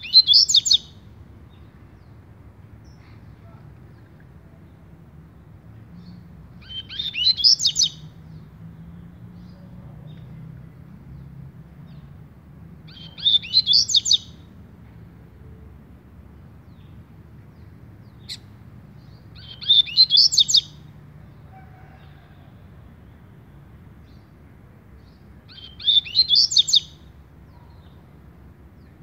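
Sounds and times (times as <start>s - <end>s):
bird singing whistled notes: 0.0s - 1.0s, 6.0s - 8.1s, 12.9s - 14.5s, 18.1s - 20.8s, 25.5s - 27.9s.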